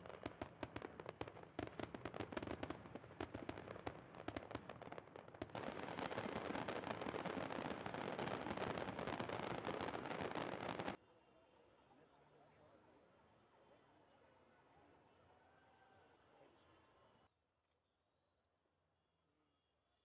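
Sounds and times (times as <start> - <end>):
fireworks bangs and crackles: 0.0 - 11.0.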